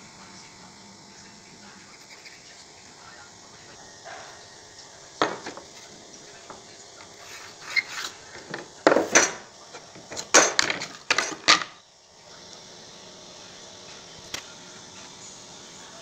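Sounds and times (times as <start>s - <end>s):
metal tools knocking on wooden board: 5.2s - 5.7s.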